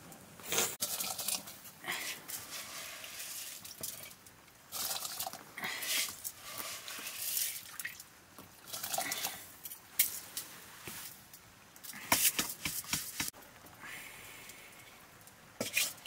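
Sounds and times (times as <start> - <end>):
wet rice scraped from metal bowl: 2.0 - 7.7
rice splashing into water: 2.3 - 8.1.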